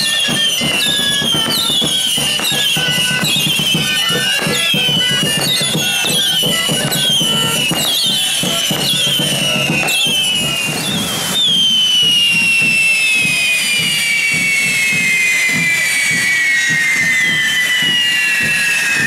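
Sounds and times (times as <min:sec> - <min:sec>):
whistling fireworks: 0:00.0 - 0:19.0.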